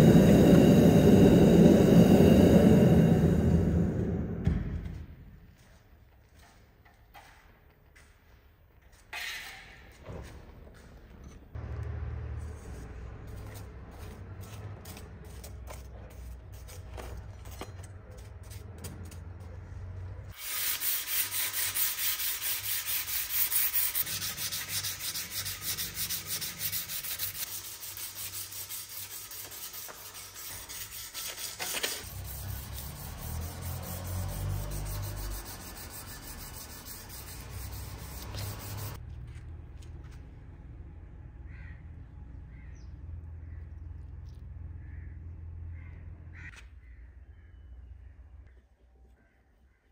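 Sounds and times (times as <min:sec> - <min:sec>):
sandpaper scraping steel blade: 0:12.6 - 0:19.4, 0:20.3 - 0:39.0.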